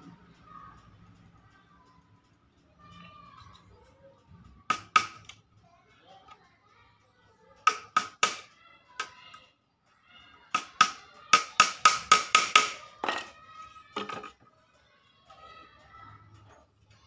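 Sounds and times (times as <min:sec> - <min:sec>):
small hammer tapping metal bars: 0:02.7 - 0:05.5, 0:07.5 - 0:17.0.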